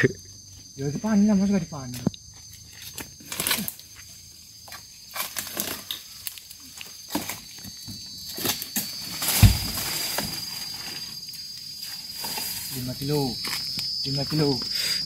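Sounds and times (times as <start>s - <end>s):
insect buzz: 0.0s - 15.0s
palm fronds rustling: 2.6s - 7.6s, 8.2s - 13.7s
heavy thud: 9.3s - 9.9s.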